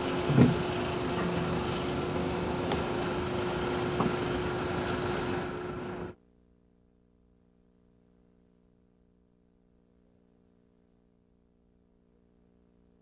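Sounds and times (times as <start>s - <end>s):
constant low hum: 0.0s - 13.0s.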